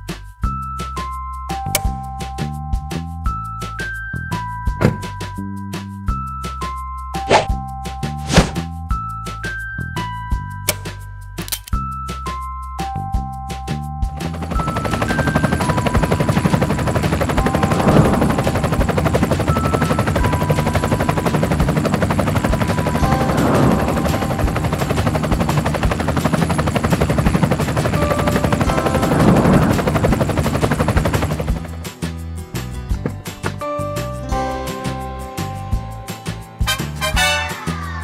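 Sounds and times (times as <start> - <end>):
helicopter rotor chopping: 14.2 - 32.3.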